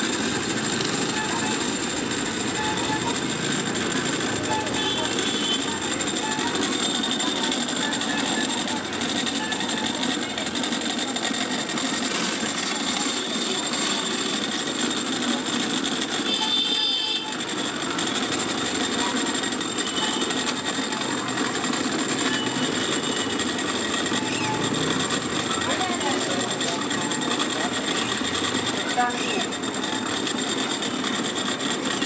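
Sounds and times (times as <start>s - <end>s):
cotton candy machine drone: 0.0s - 32.0s.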